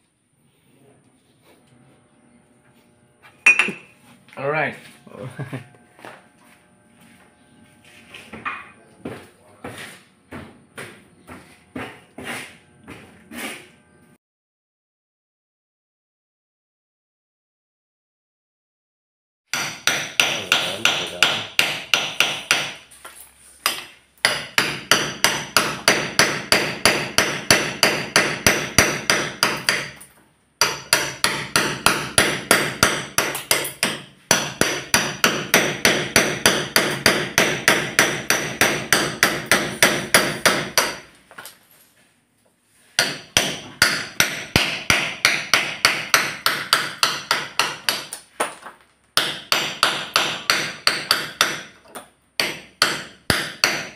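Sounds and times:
hammer striking steel chisel: 0:03.4 - 0:03.9, 0:19.5 - 0:22.9, 0:23.6 - 0:41.5, 0:42.9 - 0:53.9.

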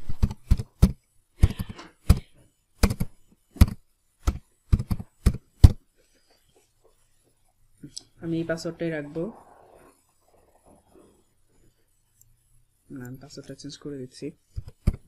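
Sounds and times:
computer keyboard typing: 0:02.8 - 0:05.8.

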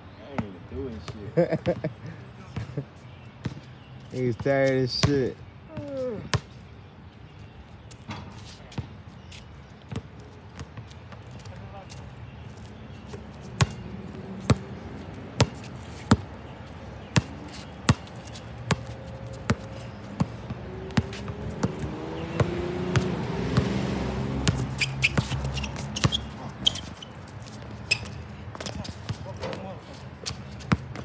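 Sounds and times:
basketball bouncing on hard court: 0:14.4 - 0:14.7, 0:15.4 - 0:16.4, 0:17.2 - 0:23.7, 0:24.4 - 0:27.0, 0:27.9 - 0:31.0.

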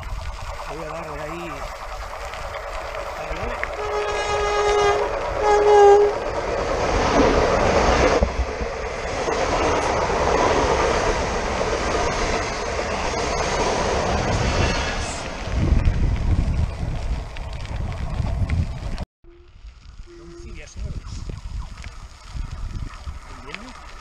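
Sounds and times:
train wheels rushing on rails: 0:02.7 - 0:16.2
train horn blasts: 0:03.7 - 0:06.2, 0:19.2 - 0:20.7.

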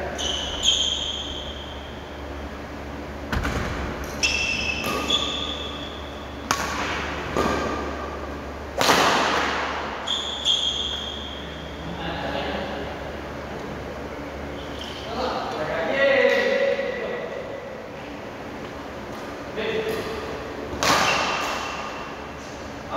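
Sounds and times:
shoes squeaking on floor: 0:00.0 - 0:01.8, 0:04.2 - 0:06.4, 0:10.0 - 0:11.6, 0:14.6 - 0:15.2
racket hitting shuttlecock: 0:06.4 - 0:09.9, 0:20.7 - 0:22.2.

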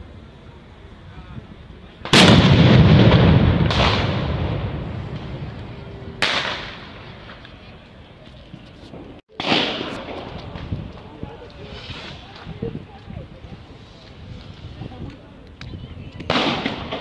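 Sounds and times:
firework explosion rumbling: 0:01.4 - 0:15.4, 0:16.2 - 0:17.0
sharp firework bang: 0:02.0 - 0:05.6, 0:06.2 - 0:07.4, 0:09.3 - 0:10.7, 0:16.3 - 0:17.0.

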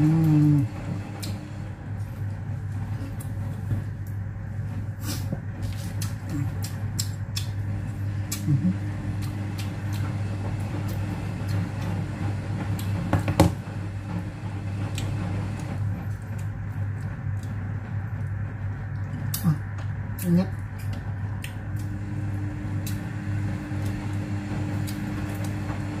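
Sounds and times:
low hum: 0:00.0 - 0:26.0
person chewing and smacking lips: 0:05.0 - 0:11.6, 0:15.0 - 0:22.0.

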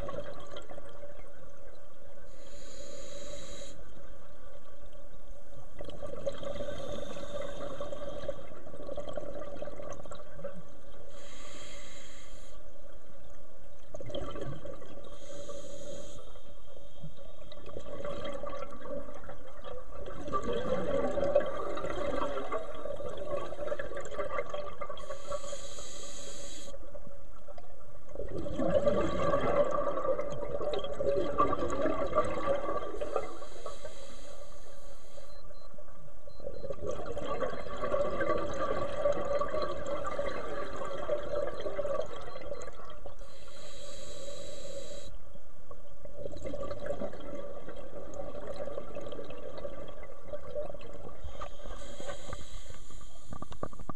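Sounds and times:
regulator hissing inhalations: 0:02.3 - 0:03.8, 0:11.1 - 0:12.6, 0:15.2 - 0:16.3, 0:25.0 - 0:26.8, 0:43.2 - 0:45.1, 0:51.7 - 0:53.3
bubbling exhalations underwater: 0:14.0 - 0:14.9, 0:17.4 - 0:25.0, 0:28.1 - 0:33.4, 0:36.6 - 0:43.0, 0:46.2 - 0:51.2.

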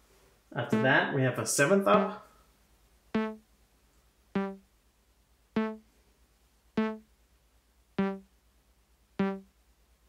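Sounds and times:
synthesizer plucked notes: 0:00.8 - 0:01.0, 0:03.2 - 0:03.4, 0:04.4 - 0:04.6, 0:05.6 - 0:05.8, 0:06.8 - 0:07.0, 0:08.0 - 0:08.3, 0:09.2 - 0:09.5.

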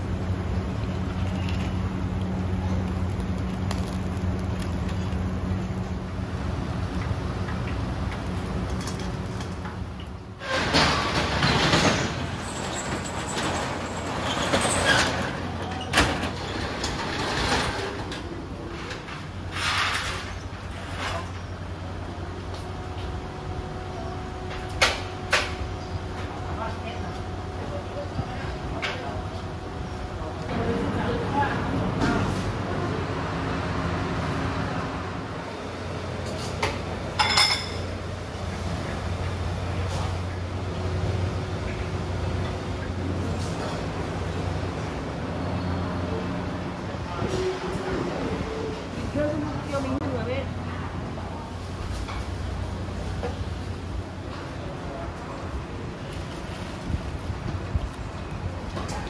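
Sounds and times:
fans humming: 0:00.0 - 0:59.0
metal roller shutter rattling: 0:10.4 - 0:21.4
dishes clinking: 0:37.2 - 0:37.9.

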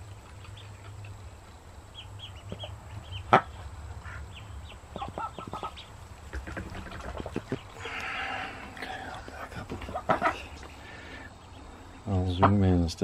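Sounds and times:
ducklings peeping: 0:00.0 - 0:12.8
duck quacking: 0:02.2 - 0:08.4, 0:09.6 - 0:11.0.

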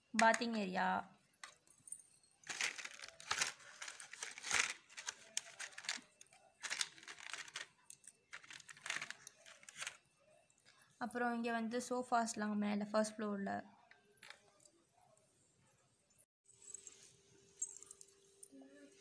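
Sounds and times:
plastic bag crinkling: 0:02.4 - 0:10.0.

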